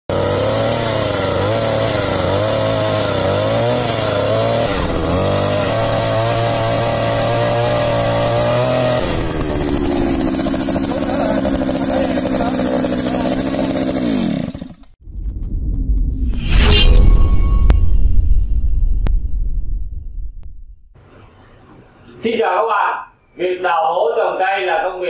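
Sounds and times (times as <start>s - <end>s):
two-stroke auger engine running: 0.1s - 14.9s.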